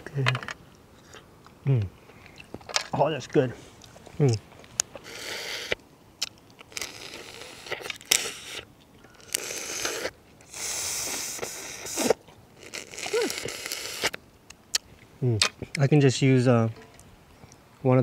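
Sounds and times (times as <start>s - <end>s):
crawfish shells cracking: 3.8s - 10.6s, 11.4s - 15.8s.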